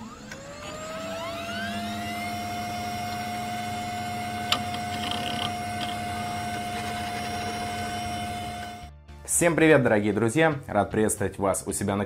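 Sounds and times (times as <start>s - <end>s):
motor whine: 0.0s - 8.9s.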